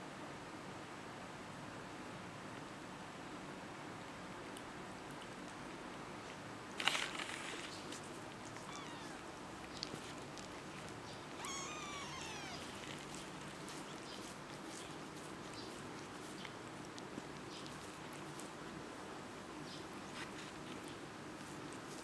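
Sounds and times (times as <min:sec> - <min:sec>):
kitten mewing: 0:08.4 - 0:10.2, 0:11.3 - 0:13.9.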